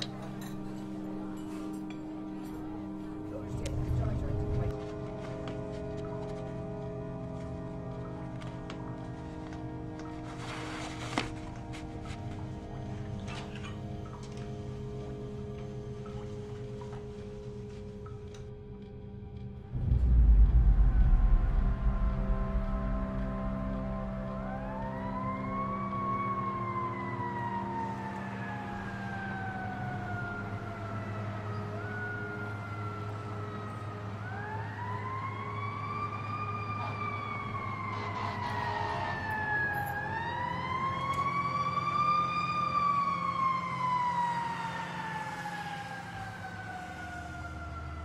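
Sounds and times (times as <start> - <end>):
steady low hum: 13.8 - 25.8
siren wailing: 19.3 - 48.0.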